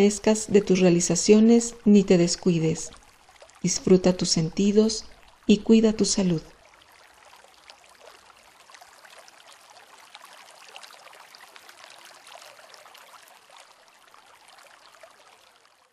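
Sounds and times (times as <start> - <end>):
trickling and splashing water: 0.0 - 15.9
water drips ticking: 0.0 - 15.9.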